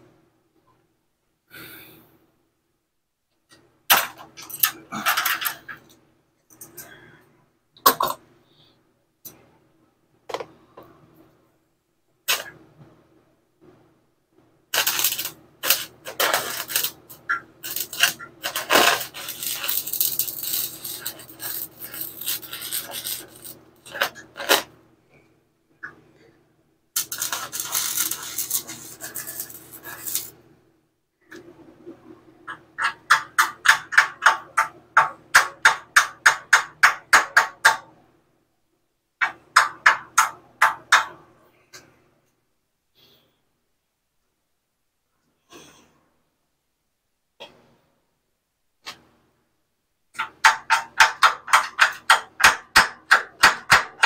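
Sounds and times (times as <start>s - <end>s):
welder electrical hum: 14.6s - 26.3s, 26.9s - 36.4s
rapid welding pops: 14.7s - 24.7s, 27.0s - 30.3s
welding arc crackling: 14.7s - 24.7s, 27.0s - 30.3s.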